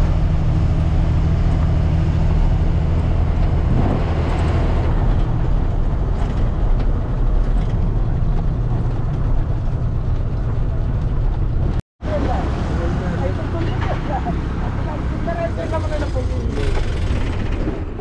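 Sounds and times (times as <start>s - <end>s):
road noise: 0.0s - 18.0s
truck engine running: 0.0s - 18.0s.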